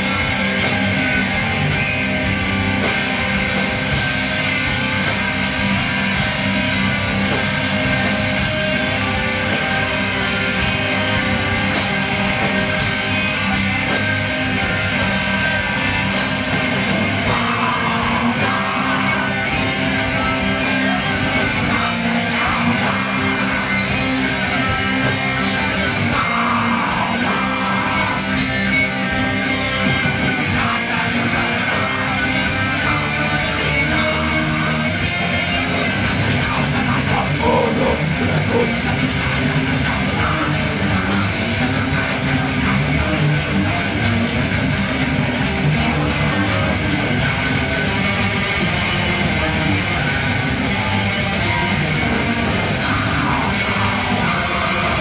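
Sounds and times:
metal band playing live: 0.0s - 55.0s
harsh vocal: 25.8s - 28.3s, 36.3s - 40.3s.

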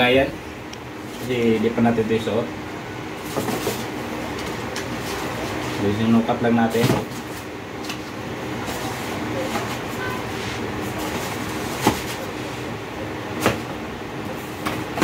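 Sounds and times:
steady background hum: 0.0s - 15.0s
sneakers and shoebox handled: 3.2s - 4.0s, 8.6s - 12.3s.

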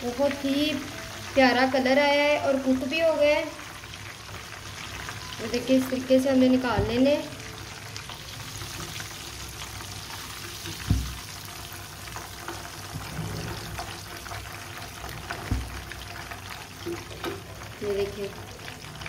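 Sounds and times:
meat sizzling in hot oil: 0.0s - 19.0s
skimmer knocks: 15.4s - 15.8s.

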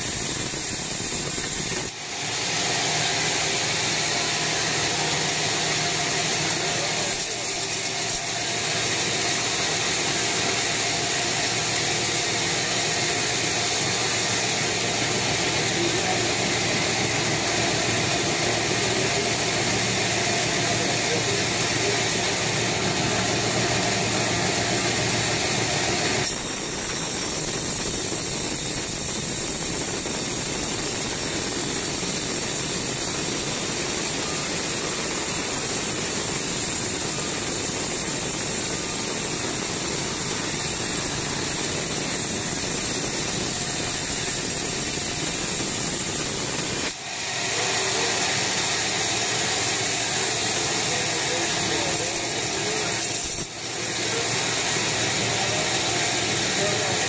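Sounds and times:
band saw cutting log: 0.0s - 57.0s.

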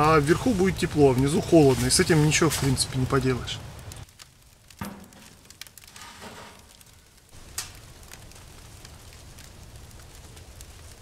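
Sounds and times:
firewood crackling: 0.0s - 11.0s
loud wood pop: 4.8s - 5.6s.

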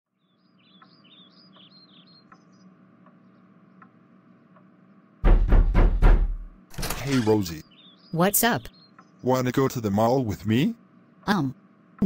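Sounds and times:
birds chirping: 0.1s - 5.2s, 6.6s - 12.0s
soft ticks: 0.8s - 3.2s, 3.8s - 4.7s.

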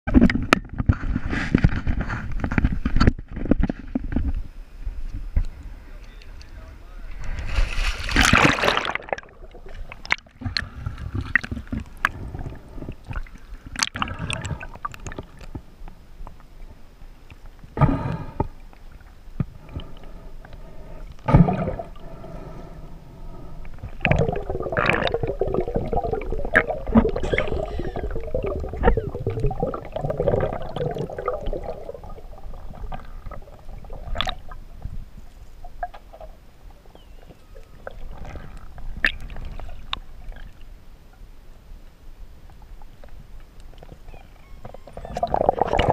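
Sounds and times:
low underwater rumble: 4.0s - 41.3s
camera splashing into water: 7.5s - 9.3s.

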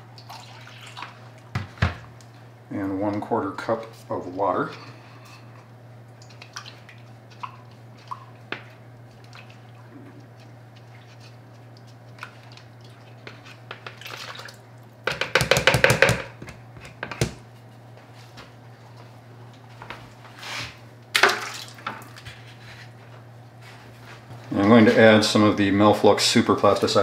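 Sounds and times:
steady low hum: 0.0s - 15.3s
water pouring and splashing: 0.2s - 1.3s, 10.8s - 14.6s, 21.2s - 22.2s.

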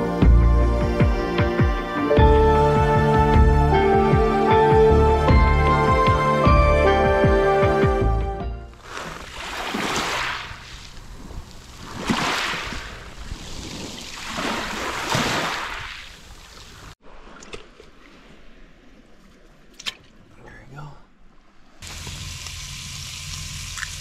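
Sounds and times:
small waves on pebble beach: 8.8s - 19.0s.

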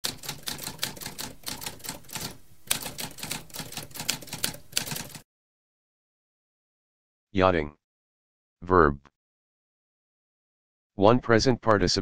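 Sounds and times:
typewriter keys striking: 0.0s - 5.2s.

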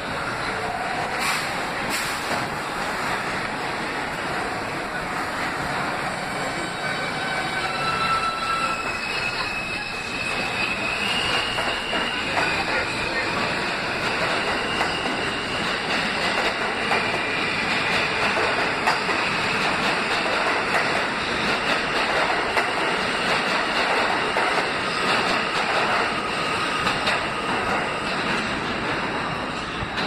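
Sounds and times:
subway train rumbling: 0.0s - 30.0s
wheels squealing: 6.3s - 15.9s.

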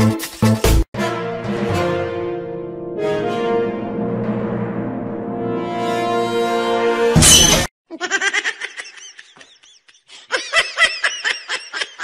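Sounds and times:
music sting with noisy hit: 3.2s - 7.7s
high-pitched rapid giggling: 7.9s - 12.0s.

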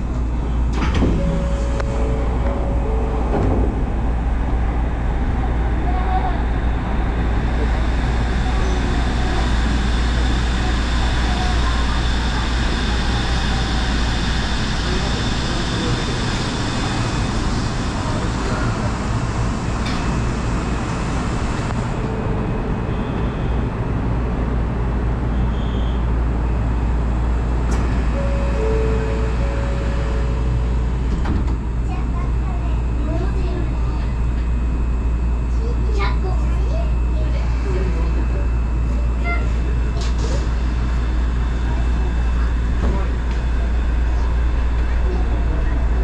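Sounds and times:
train cab hum and hiss: 0.0s - 46.0s
two-note tone: 1.2s - 3.5s, 28.0s - 31.0s.

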